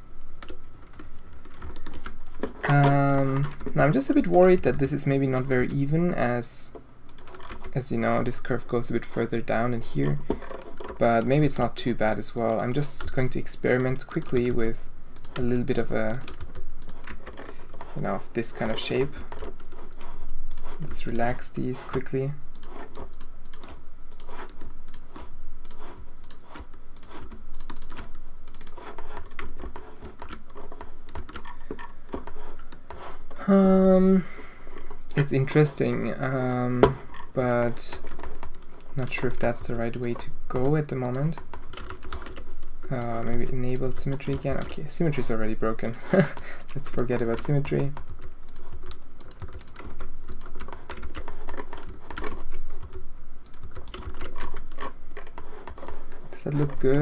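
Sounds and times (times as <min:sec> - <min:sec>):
keyboard and mouse clicking: 0:00.4 - 0:05.5, 0:07.1 - 0:07.8, 0:12.2 - 0:33.4, 0:36.8 - 0:57.0
person humming: 0:33.4 - 0:34.4.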